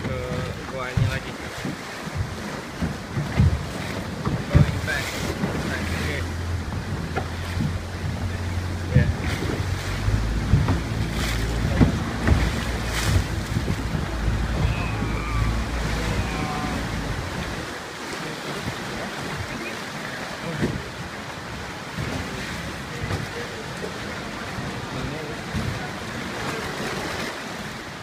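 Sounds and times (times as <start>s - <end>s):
water sloshing against rock: 0.0s - 28.0s
water splashing: 0.0s - 28.0s
wind rumbling on microphone: 0.0s - 28.0s
faint voices: 11.5s - 20.9s.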